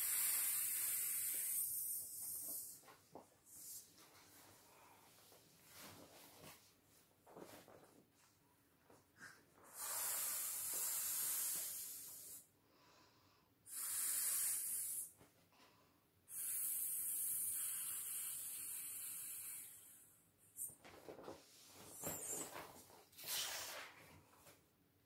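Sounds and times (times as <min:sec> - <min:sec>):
breath blown into inflatable valve: 0:00.0 - 0:02.7, 0:09.6 - 0:12.4, 0:13.7 - 0:15.1, 0:16.3 - 0:20.7.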